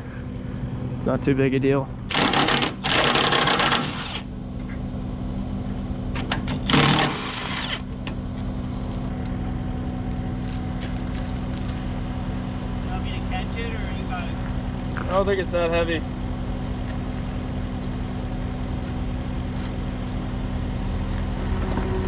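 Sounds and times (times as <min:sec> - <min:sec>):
engine idling: 0:00.0 - 0:22.0
impact wrench hammering: 0:02.1 - 0:04.0.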